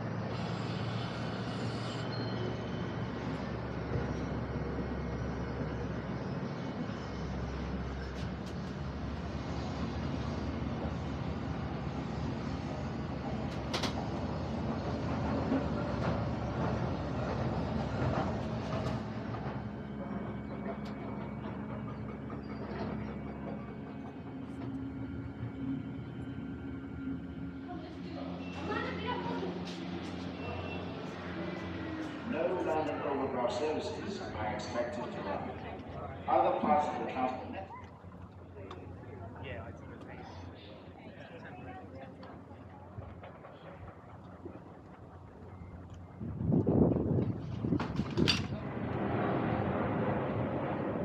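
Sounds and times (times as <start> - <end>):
cable car mechanical rumble: 0.0 - 51.0
low rumble: 43.9 - 51.0.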